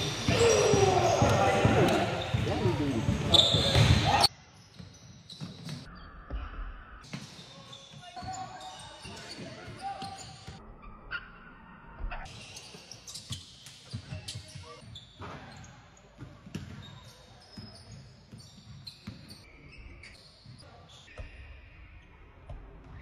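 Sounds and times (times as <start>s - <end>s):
basketballs bouncing on hardwood floor: 0.0s - 4.2s.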